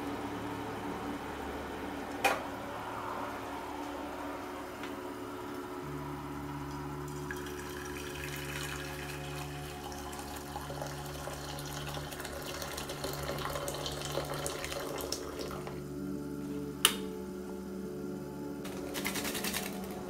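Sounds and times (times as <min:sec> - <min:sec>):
steady low hum: 0:00.0 - 0:20.0
water pouring into a metal saucepan: 0:07.1 - 0:15.7.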